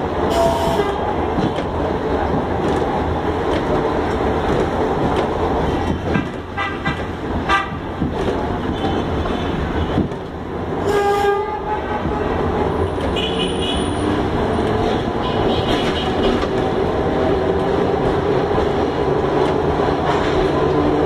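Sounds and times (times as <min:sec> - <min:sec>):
tram rumbling and rattling: 0:00.0 - 0:21.0
tram horn toot: 0:00.2 - 0:01.3, 0:05.6 - 0:08.0, 0:10.8 - 0:16.6.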